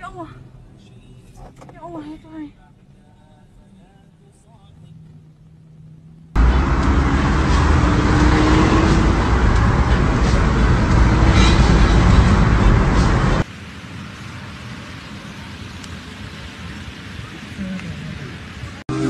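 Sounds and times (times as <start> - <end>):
road and wind noise inside car: 0.0 - 19.0
rising engine note: 6.4 - 13.4.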